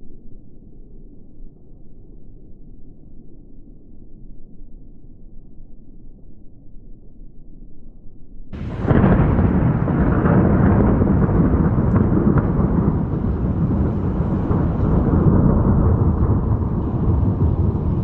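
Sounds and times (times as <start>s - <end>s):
loud thunderclap: 8.6s - 18.0s
thunder rumbling: 8.6s - 18.0s.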